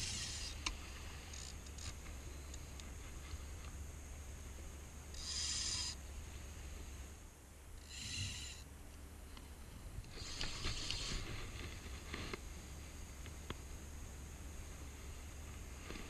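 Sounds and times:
fishing reel drag buzzing: 0.0s - 0.6s, 1.2s - 2.6s, 5.1s - 6.0s, 7.8s - 8.6s.

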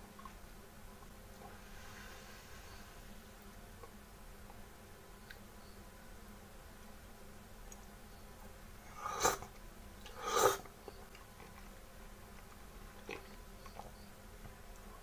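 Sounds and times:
person slurping noodles: 8.9s - 9.5s, 10.1s - 10.7s.

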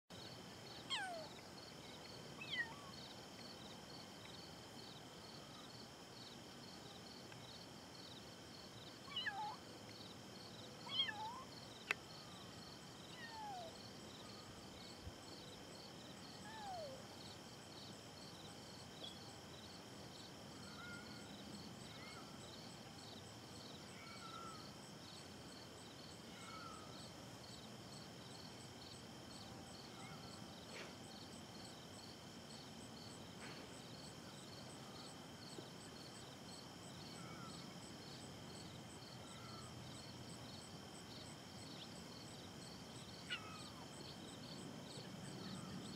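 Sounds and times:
insect trilling: 0.7s - 3.1s, 10.8s - 14.6s, 37.0s - 37.8s, 39.0s - 39.7s, 43.0s - 44.2s
kittens mewing: 10.9s - 11.4s.

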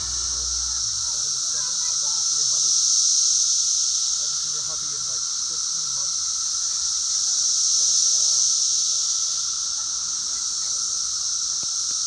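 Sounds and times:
low steady tone: 0.0s - 1.9s
cicadas droning: 0.0s - 12.0s.

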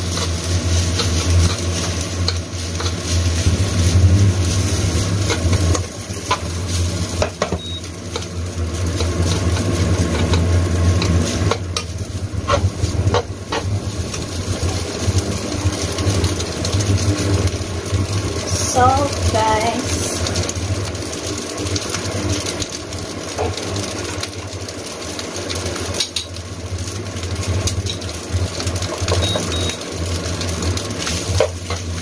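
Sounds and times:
steady low hum: 0.0s - 14.8s
rice rustling in a pan: 0.0s - 32.0s.

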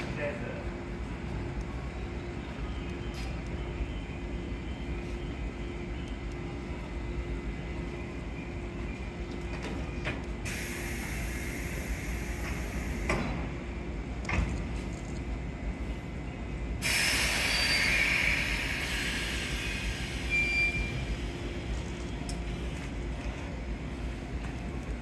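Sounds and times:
electric train humming: 0.0s - 25.0s
train air hiss: 10.4s - 13.6s, 16.7s - 21.7s.

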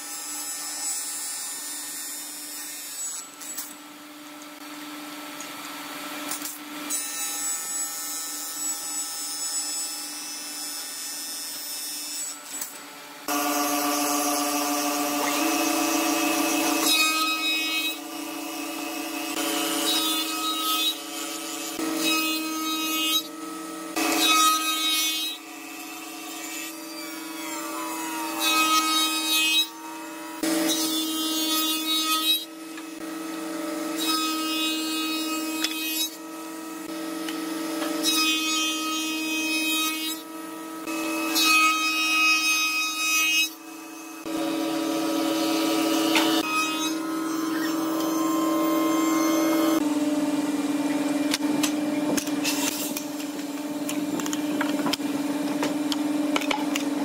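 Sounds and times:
machine cutting wood: 12.0s - 57.0s.

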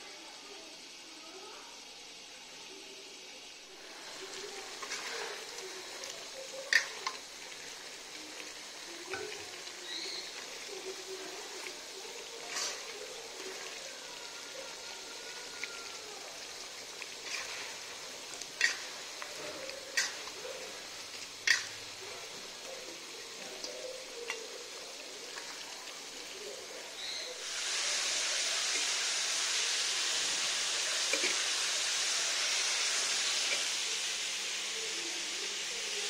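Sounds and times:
chicken sizzling in gravy: 0.0s - 36.0s.

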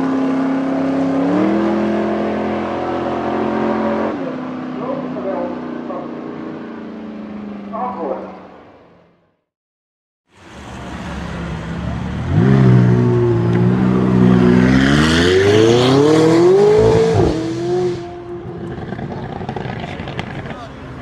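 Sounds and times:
car engine accelerating: 0.0s - 9.2s, 10.4s - 21.0s.

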